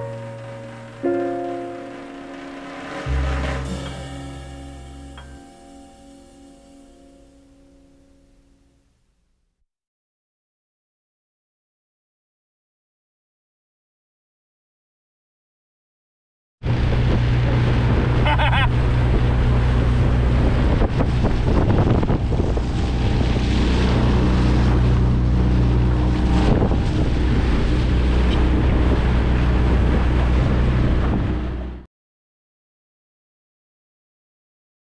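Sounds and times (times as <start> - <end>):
motorboat engine running: 0.0 - 5.6, 16.6 - 31.8
wind buffeting microphone: 16.6 - 31.8.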